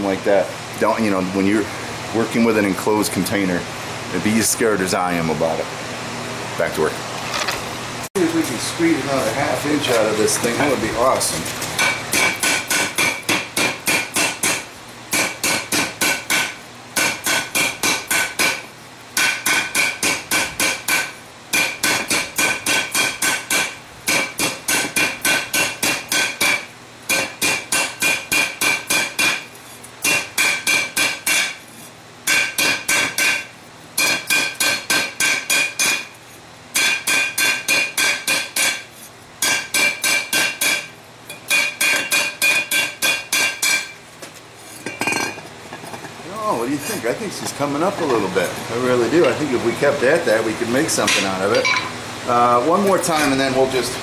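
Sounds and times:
hammer striking metal bell: 51.6s - 52.0s.

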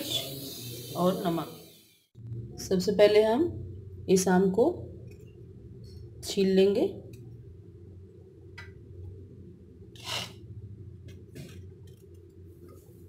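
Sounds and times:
steady low hum: 2.1s - 13.0s
knife scraping mango skin: 10.0s - 10.4s.

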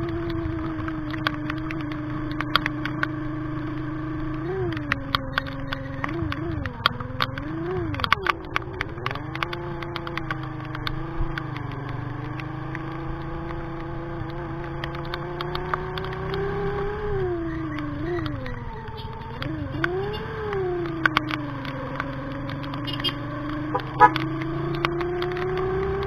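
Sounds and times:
rain ticking: 0.0s - 26.0s
scooter engine droning: 0.0s - 26.0s.

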